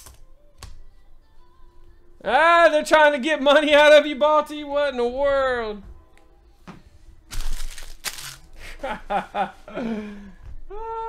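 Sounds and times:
foil wrapper crinkling and tearing: 0:07.3 - 0:08.5.

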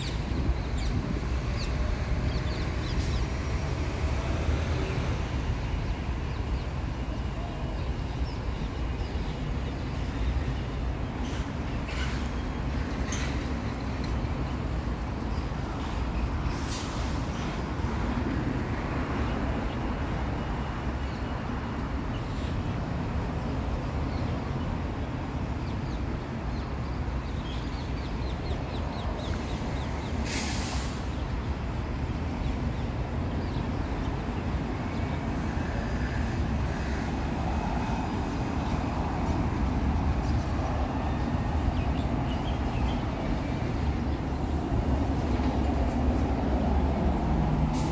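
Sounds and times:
short hiss: 0:30.2 - 0:31.1.

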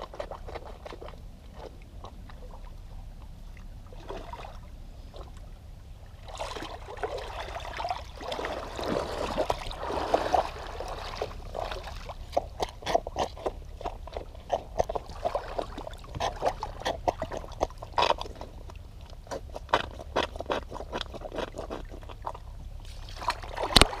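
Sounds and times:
water splashing around feet: 0:06.2 - 0:24.0
wet shoe squelching: 0:06.4 - 0:24.0.

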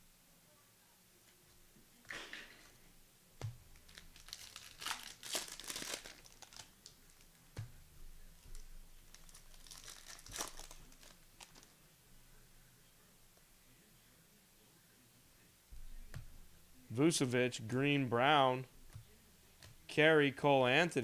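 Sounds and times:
plastic wrapper tearing and crinkling: 0:03.7 - 0:07.3, 0:08.5 - 0:11.7.

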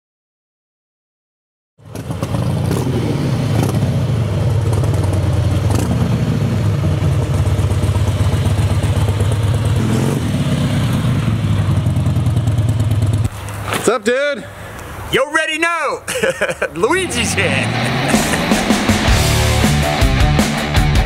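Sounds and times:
motorcycle engine idling: 0:01.8 - 0:03.0, 0:03.6 - 0:13.3.

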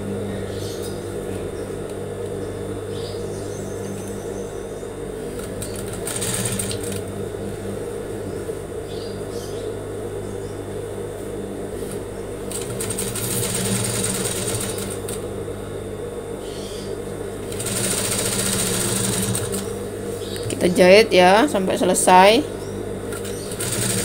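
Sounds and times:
sewing machine motor humming: 0:05.2 - 0:07.4, 0:11.9 - 0:15.4, 0:17.4 - 0:20.5, 0:23.0 - 0:24.0
sewing machine stitching: 0:05.4 - 0:07.0, 0:12.5 - 0:15.2, 0:17.5 - 0:19.7, 0:23.1 - 0:24.0.

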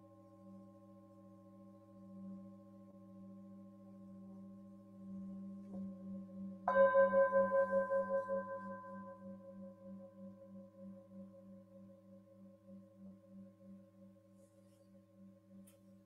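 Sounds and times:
singing bowls ringing: 0:01.6 - 0:13.9
bowl struck with mallet: 0:06.6 - 0:09.9.

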